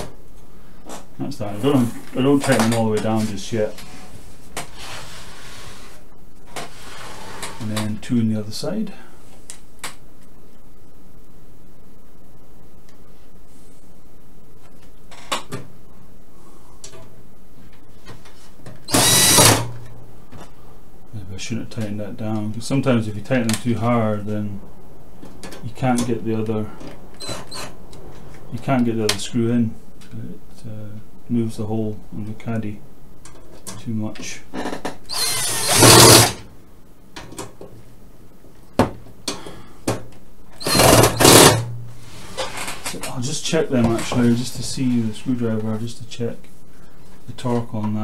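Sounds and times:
cordless drill driving screw: 0:18.9 - 0:19.6, 0:35.1 - 0:36.4, 0:40.6 - 0:41.6.

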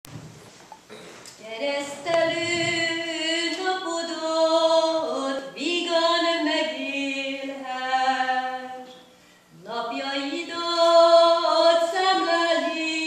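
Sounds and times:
woman singing unaccompanied: 0:01.4 - 0:08.9, 0:09.6 - 0:13.0
short breath: 0:09.0 - 0:09.6.

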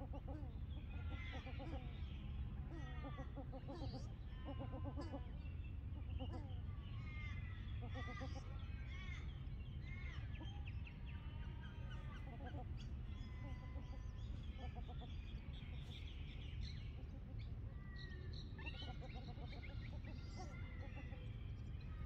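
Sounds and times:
steady low rumble: 0:05.2 - 0:22.0.

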